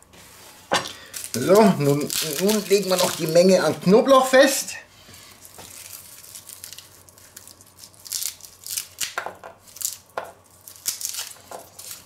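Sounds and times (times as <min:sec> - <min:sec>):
garlic skin crackling: 0:00.9 - 0:04.4, 0:05.2 - 0:12.0.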